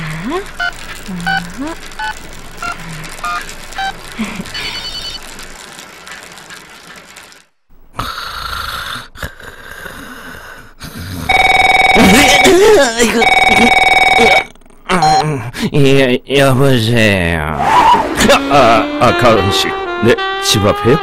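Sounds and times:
telephone ringing: 0.6 - 5.2, 11.3 - 15.2
phone keypad beeps: 11.3 - 15.2.

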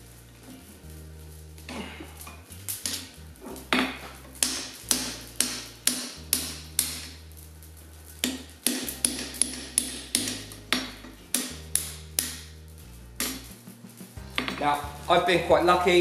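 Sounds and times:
hammer striking hot metal bar: 1.7 - 7.2, 8.2 - 12.6, 13.2 - 13.5, 14.2 - 16.0.

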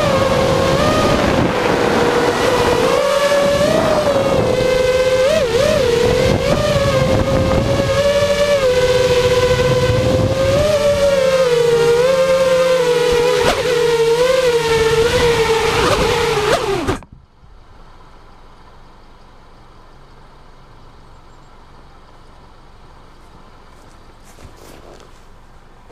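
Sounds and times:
quadcopter motors whining: 0.0 - 17.2.

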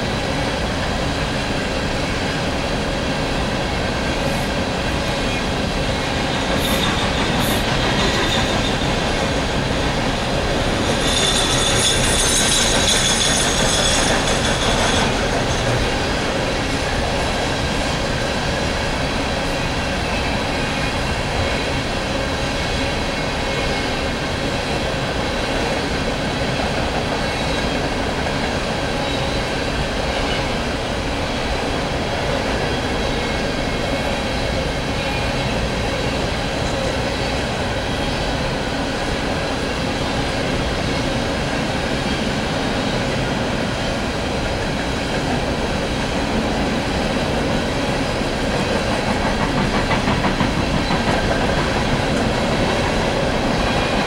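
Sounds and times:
freight train wheels rumbling on rails: 0.0 - 54.0
high metallic wheel squeal: 10.8 - 15.6.

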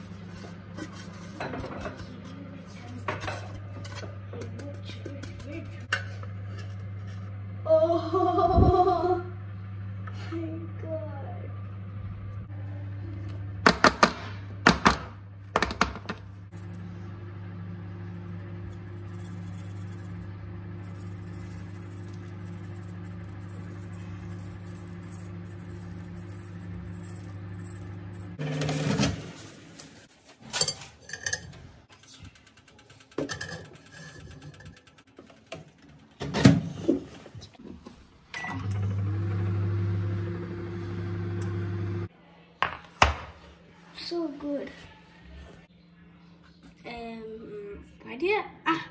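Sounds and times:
steady low hum: 0.0 - 30.1.

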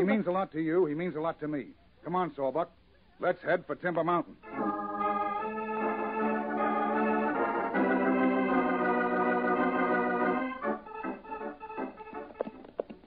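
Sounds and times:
sustained organ chords: 4.4 - 13.0.

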